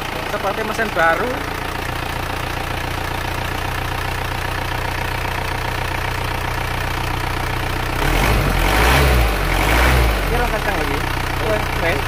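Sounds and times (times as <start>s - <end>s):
diesel engine idling: 0.0s - 12.0s.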